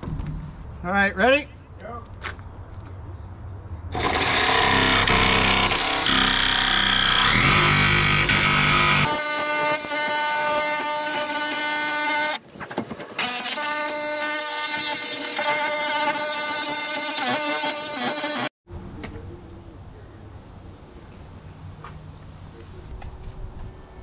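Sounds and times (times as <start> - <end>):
jigsaw cutting sheet metal: 3.9 - 12.4, 13.2 - 18.5.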